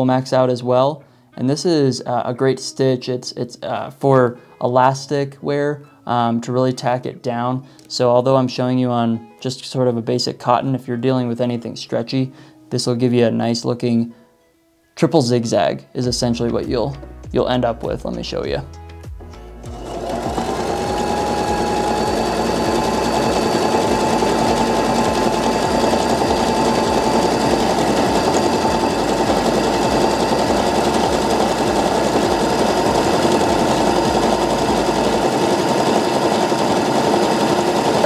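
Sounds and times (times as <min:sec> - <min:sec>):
sewing machine running: 0:19.7 - 0:38.0.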